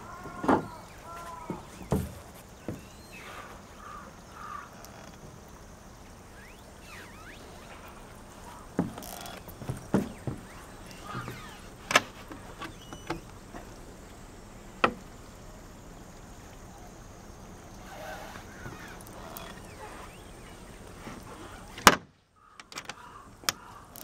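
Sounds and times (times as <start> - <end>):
steady low hiss: 0.0 - 24.0
small clicks: 17.7 - 20.6, 22.6 - 24.0.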